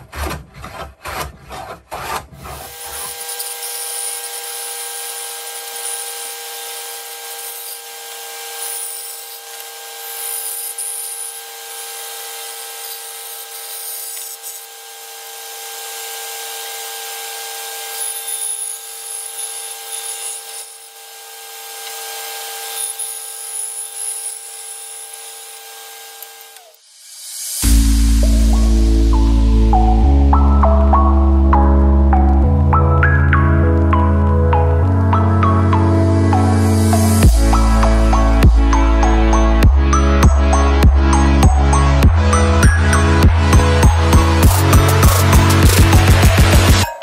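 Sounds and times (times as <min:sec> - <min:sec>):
hand plane stroke on wood: 0:00.0 - 0:04.1
bandsaw whine: 0:00.0 - 0:47.0
saw blade cutting wood hiss: 0:02.6 - 0:15.1, 0:21.7 - 0:28.2.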